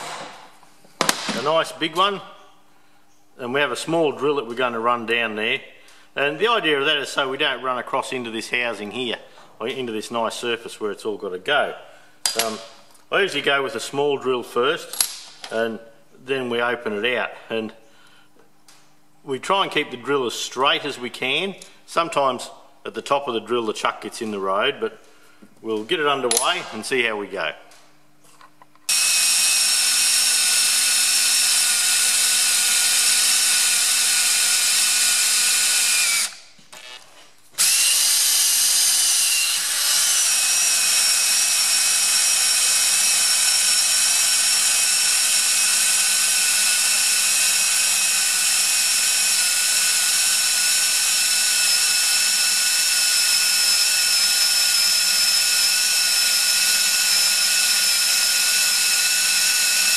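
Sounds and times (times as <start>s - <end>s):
electric drill whining: 28.9s - 59.9s.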